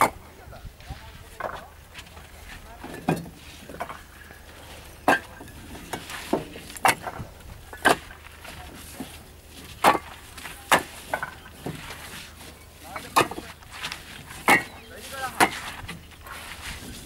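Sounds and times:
bricks clacking together: 0:05.0 - 0:09.1, 0:09.7 - 0:12.0, 0:12.9 - 0:16.0.

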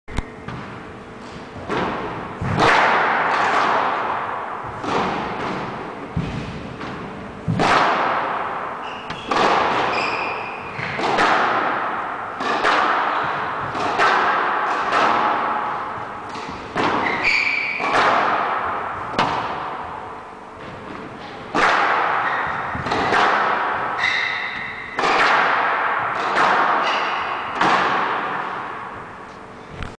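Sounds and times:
squash ball hits echoing: 0:00.1 - 0:29.2
shoes squeaking on floor: 0:08.8 - 0:11.0, 0:17.0 - 0:17.8, 0:22.2 - 0:22.8, 0:24.0 - 0:24.8.

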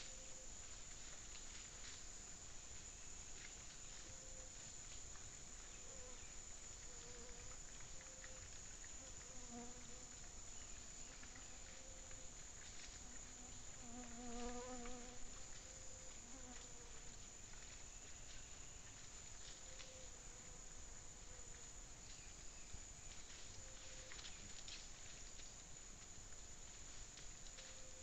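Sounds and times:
faint scattered clicks: 0:02.7 - 0:28.0
flying insect buzzing: 0:13.1 - 0:15.4.

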